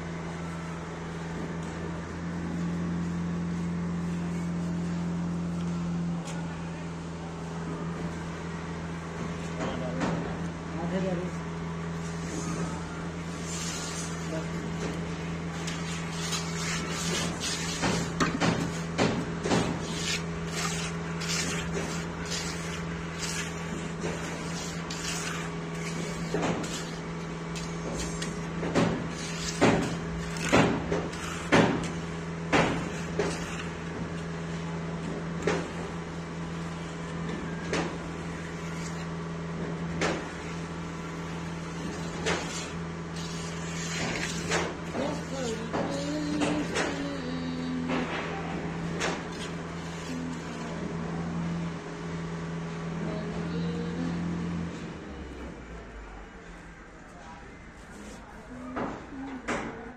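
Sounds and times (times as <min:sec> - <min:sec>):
steady low hum: 0:00.0 - 0:59.9
trowel scraping wet concrete: 0:13.2 - 0:47.7, 0:48.7 - 0:51.5.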